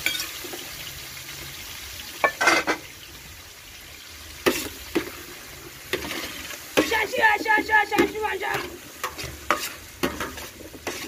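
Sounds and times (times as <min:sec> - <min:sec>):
frying sizzle: 0:00.0 - 0:11.0
metal spatula scraping a pot: 0:04.4 - 0:05.2, 0:05.8 - 0:07.1, 0:07.9 - 0:11.0.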